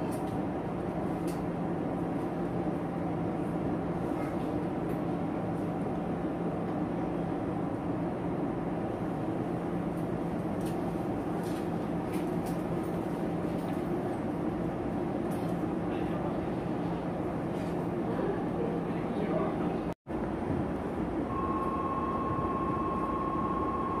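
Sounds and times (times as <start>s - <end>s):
air conditioning hum in train car: 0.0s - 24.0s.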